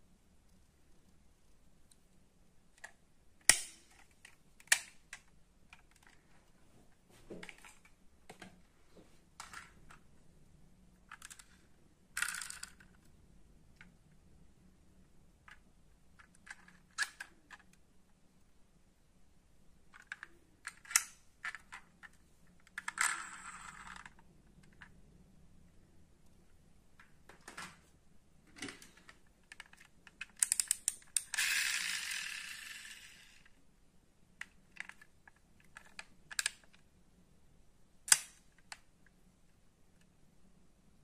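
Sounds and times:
clicks and taps of small parts: 0:28.6 - 0:31.5, 0:34.4 - 0:36.8, 0:38.1 - 0:38.8.

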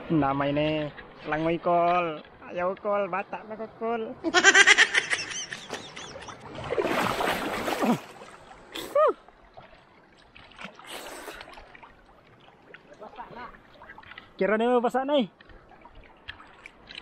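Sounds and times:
seawater splashing: 0:00.1 - 0:17.0.

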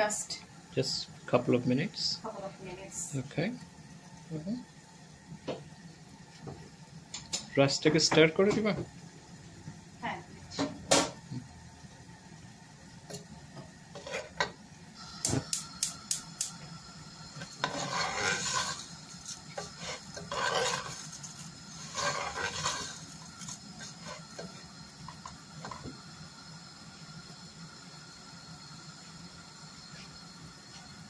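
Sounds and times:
rice grains scraping in pan: 0:13.9 - 0:14.6, 0:17.2 - 0:25.9.

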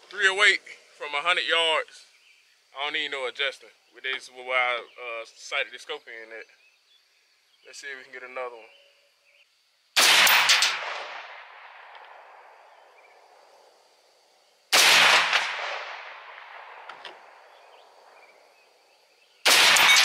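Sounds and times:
rifle shots with echo: 0:10.0 - 0:12.7, 0:14.7 - 0:18.2, 0:19.4 - 0:20.0.

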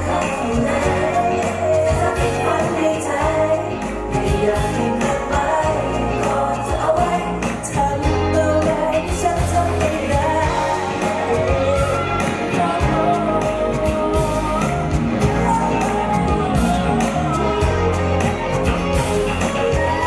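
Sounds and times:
live pop-rock band playing: 0:00.0 - 0:20.0
man singing lead vocals: 0:00.0 - 0:20.0.

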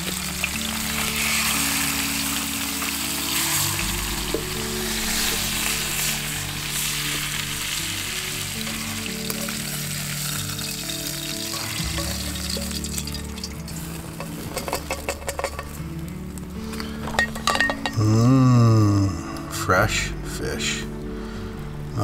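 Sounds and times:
fish sizzling in a pan: 0:00.0 - 0:18.2
background music with low notes: 0:00.0 - 0:22.0
light clinks: 0:16.8 - 0:18.0.

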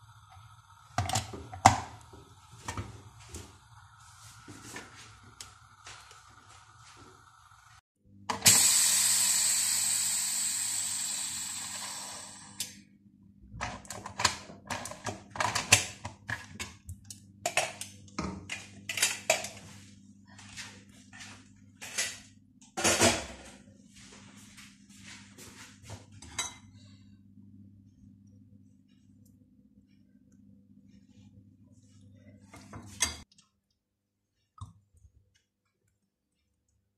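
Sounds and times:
steam hissing from valve: 0:08.5 - 0:12.6.

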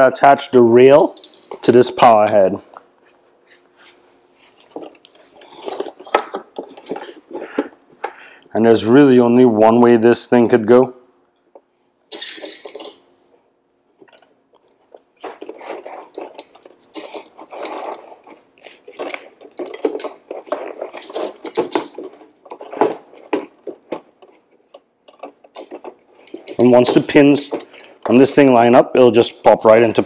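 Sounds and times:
metal clinks and knocks: 0:01.1 - 0:01.8, 0:12.1 - 0:13.1, 0:15.2 - 0:28.2.

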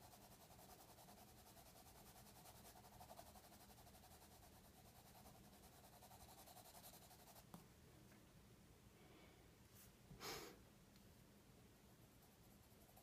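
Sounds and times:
pencil scratching on paper: 0:00.0 - 0:07.6, 0:12.2 - 0:13.0.

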